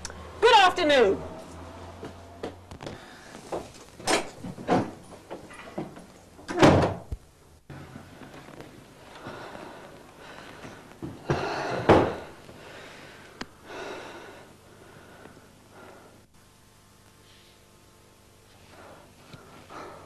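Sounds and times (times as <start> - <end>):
person breathing heavily: 2.8 - 3.6, 9.0 - 16.3, 18.5 - 20.0.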